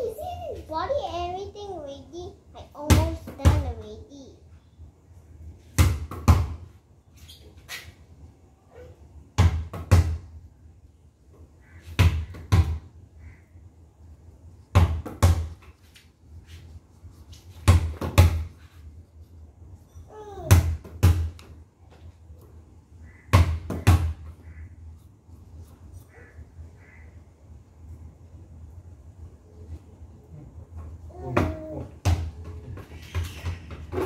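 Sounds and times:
basketball bouncing on brick: 0:05.8 - 0:06.6, 0:09.4 - 0:10.2, 0:12.0 - 0:12.8, 0:14.7 - 0:15.6, 0:17.6 - 0:18.5, 0:20.5 - 0:21.4, 0:23.3 - 0:24.3.

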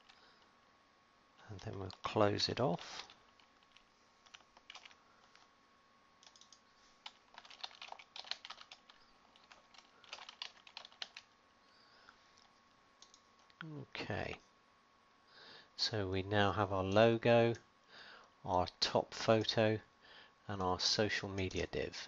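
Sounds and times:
faint keyboard typing: 0:00.0 - 0:00.6, 0:01.4 - 0:05.5, 0:06.2 - 0:11.8, 0:12.4 - 0:13.7, 0:21.3 - 0:21.7.

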